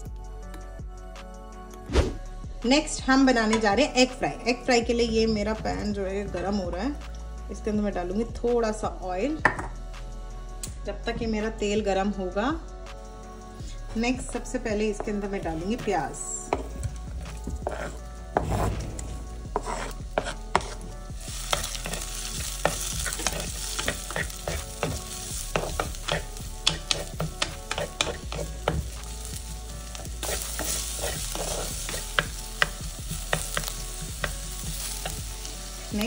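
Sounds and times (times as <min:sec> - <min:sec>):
onion sizzling in oil: 0:15.4 - 0:36.0
onion scraped off wooden board: 0:17.7 - 0:20.9
wooden spatula tapping pan: 0:22.7 - 0:28.9.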